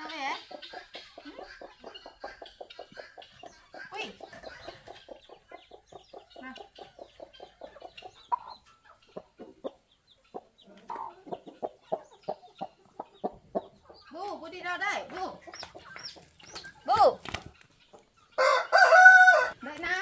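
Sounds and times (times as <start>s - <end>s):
chickens clucking: 0.0s - 20.0s
louder chicken calls: 18.3s - 19.6s.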